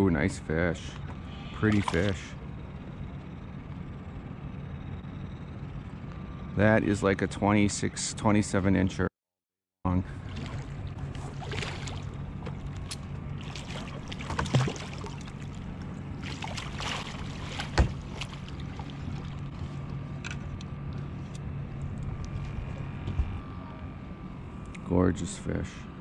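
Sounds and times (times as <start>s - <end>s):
boat motor humming: 0.0s - 9.1s, 9.9s - 26.0s.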